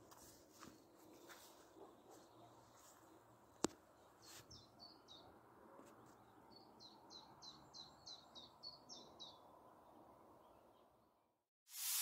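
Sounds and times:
bird chirping: 1.8 - 5.4, 6.0 - 11.0.

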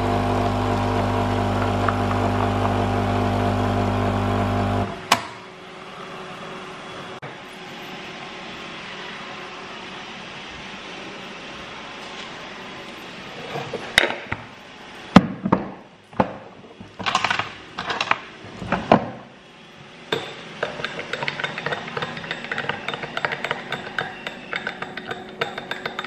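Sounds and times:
spoon clinking in glass: 20.1 - 26.0
spoon scraping glass jar: 20.6 - 26.0.

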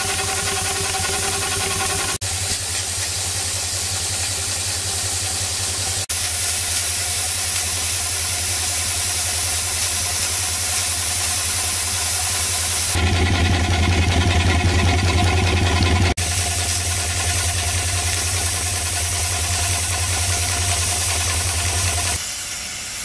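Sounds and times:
steam hissing: 0.0 - 13.4, 16.1 - 23.0
steam engine beat: 0.0 - 22.2.

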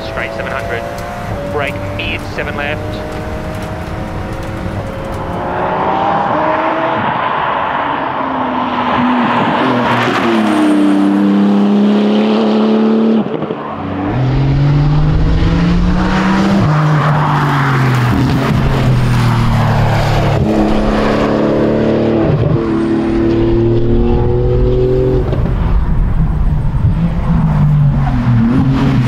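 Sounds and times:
race car engine shifting gears: 0.0 - 7.2.

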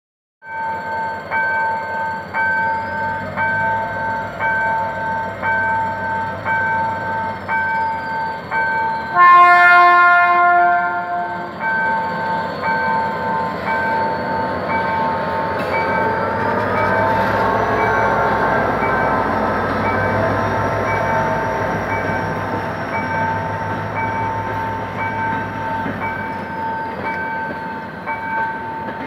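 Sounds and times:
train rolling past: 0.5 - 29.0
diesel locomotive horn: 9.1 - 11.6.

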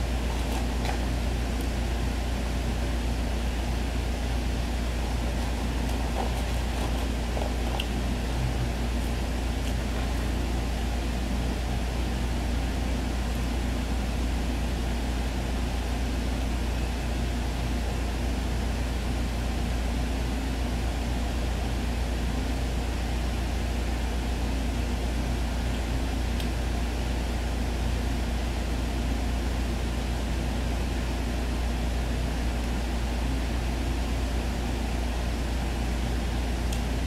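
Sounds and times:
constant low hum: 0.0 - 37.0.

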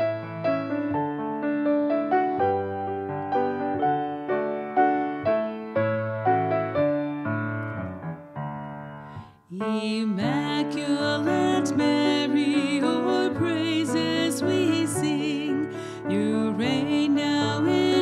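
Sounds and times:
piano playing slow chords: 0.0 - 18.0
person singing with vibrato: 9.5 - 18.0.

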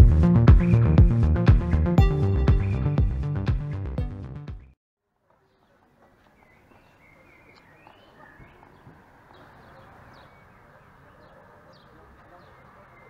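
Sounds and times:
electronic music: 0.0 - 4.8
faint street ambience: 5.0 - 13.0
small birds chirping: 5.4 - 13.0.

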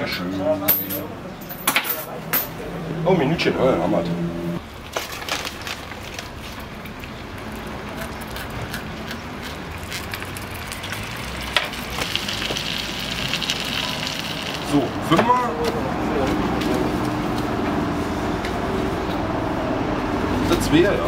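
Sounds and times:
sausages sizzling in hot fat: 10.0 - 14.9.

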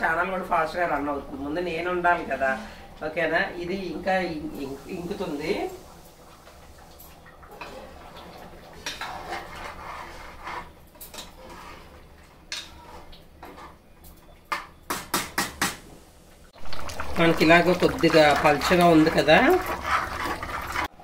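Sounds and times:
metal utensil scraping a cooking pot: 7.5 - 13.8, 18.1 - 20.9.

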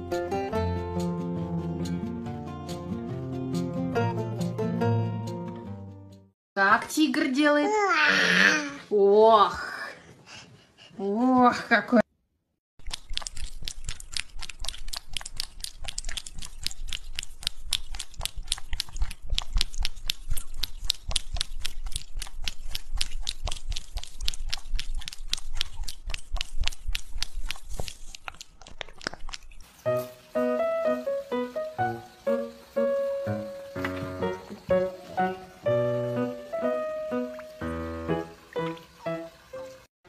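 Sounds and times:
plucked music: 0.0 - 6.3, 29.8 - 39.8
cat licking: 12.8 - 29.8.

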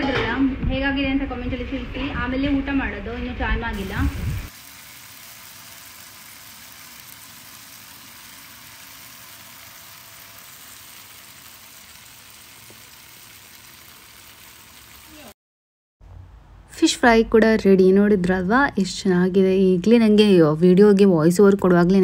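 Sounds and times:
fish sizzling in hot oil: 3.8 - 15.4.

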